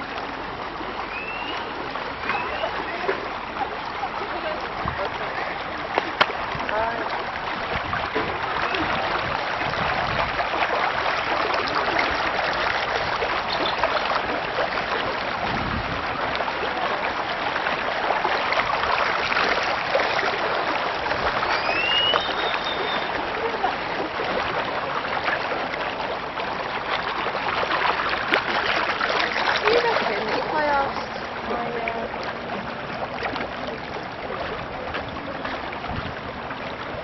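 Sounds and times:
rushing water: 0.0 - 37.0
high chirp: 21.4 - 23.2.

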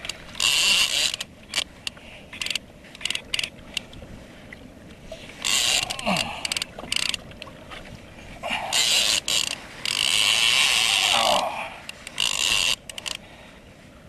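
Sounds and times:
fishing reel drag buzzing: 0.4 - 1.3, 5.4 - 7.2, 8.5 - 11.4, 12.0 - 13.2.

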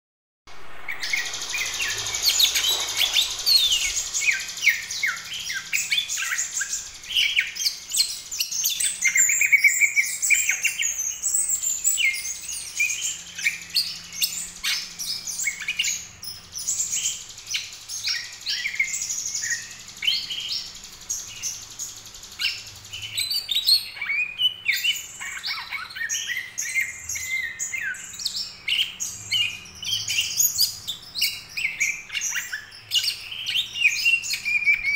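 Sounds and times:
bird chirping and twittering: 0.5 - 34.9.

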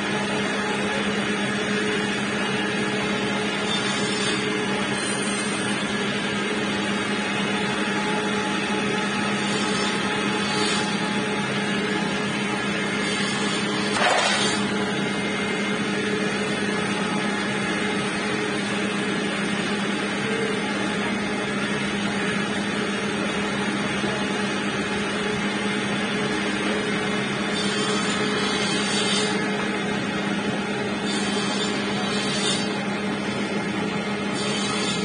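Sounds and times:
electric motor humming: 0.0 - 35.0
wood grinding against sanding drum: 12.9 - 14.7.

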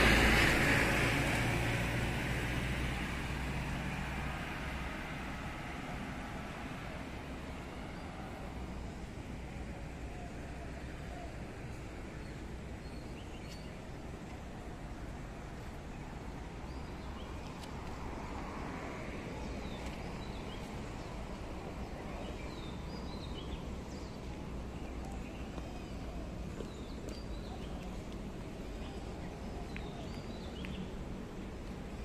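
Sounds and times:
steady background noise: 0.0 - 32.0
small birds chirping: 19.3 - 32.0.

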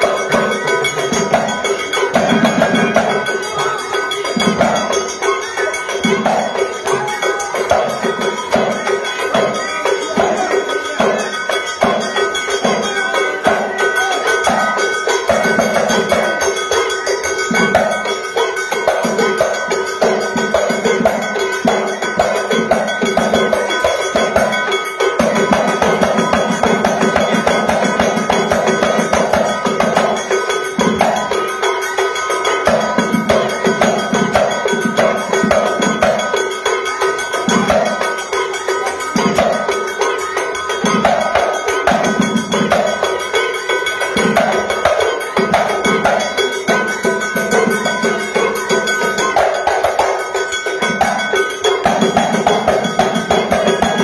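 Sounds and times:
clanging metal percussion beat: 0.0 - 54.0
frame drums: 0.0 - 54.0
steady ringing tone: 0.0 - 54.0.

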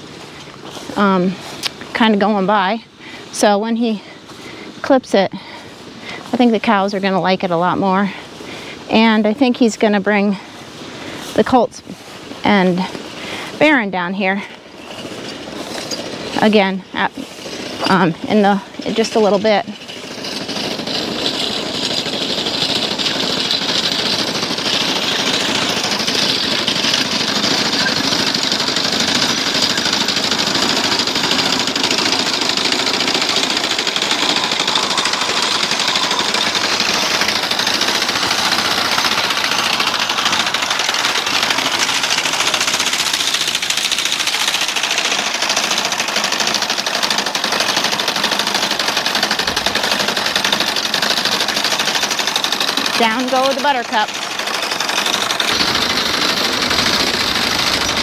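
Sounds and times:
mower cutter bar rattling: 14.8 - 58.0.

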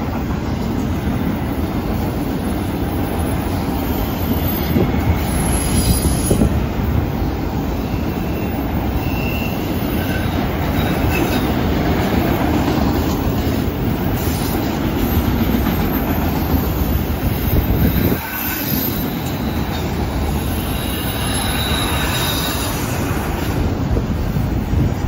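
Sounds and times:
train wheels rumbling on rail: 0.0 - 25.0
high wheel squeal: 3.8 - 6.6, 7.8 - 11.5, 17.2 - 23.4.

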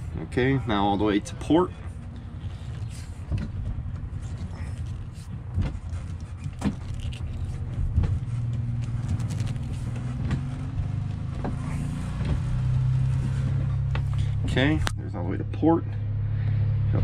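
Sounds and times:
steering clicks: 1.9 - 15.0.

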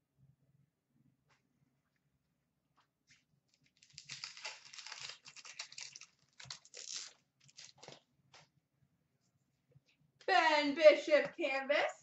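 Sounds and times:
wrapper crinkling and tearing: 3.5 - 8.1.

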